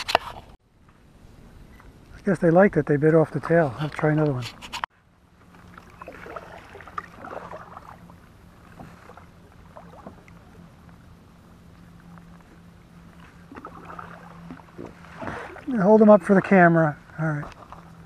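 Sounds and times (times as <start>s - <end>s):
steady low hum: 0.3s - 18.0s
paddle dipping and dripping: 5.3s - 18.0s.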